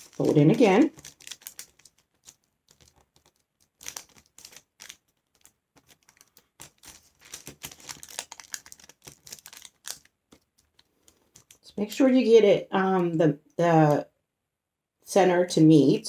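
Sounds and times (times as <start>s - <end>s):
paper crinkling and rustling: 0.0s - 11.7s.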